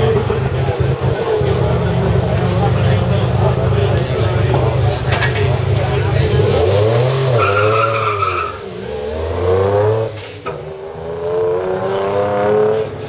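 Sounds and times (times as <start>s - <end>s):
engine exhaust crack: 0.1s - 7.3s
car engine revving hard: 5.6s - 13.0s.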